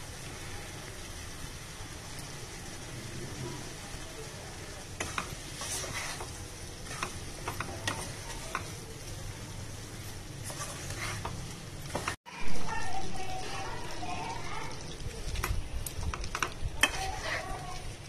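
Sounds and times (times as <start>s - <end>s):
low steady sizzle: 0.0s - 18.0s
spatula scraping frying pan: 4.8s - 9.1s, 9.7s - 12.2s, 15.3s - 18.0s.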